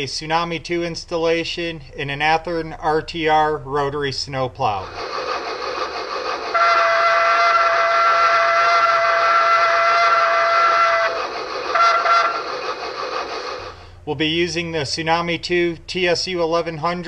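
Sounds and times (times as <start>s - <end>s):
steady steam hiss: 4.8s - 14.7s
chime steam whistle: 6.4s - 13.8s.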